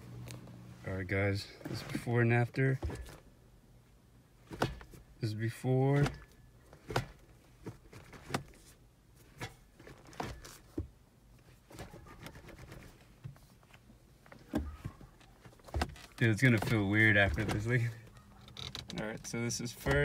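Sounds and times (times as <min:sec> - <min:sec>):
gear lever clicks and clunks: 0:04.4 - 0:05.0, 0:05.9 - 0:08.6, 0:14.2 - 0:20.0.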